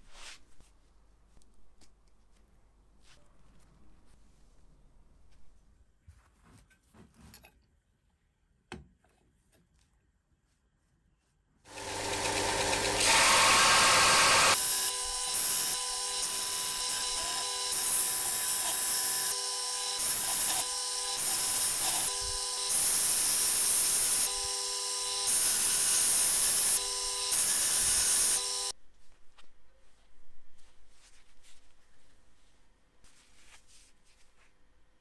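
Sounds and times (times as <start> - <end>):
belt grinder motor hum: 11.7 - 28.7
steel grinding on sanding belt: 11.7 - 28.7.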